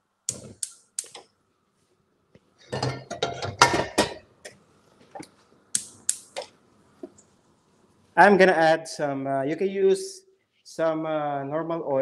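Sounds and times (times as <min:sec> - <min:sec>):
pots and pans clanking: 0:02.7 - 0:04.2.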